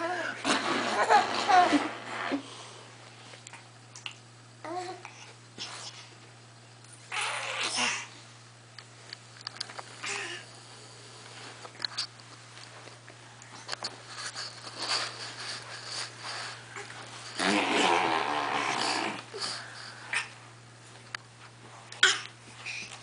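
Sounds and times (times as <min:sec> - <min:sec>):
person snuffling and blowing: 0:14.0 - 0:20.3.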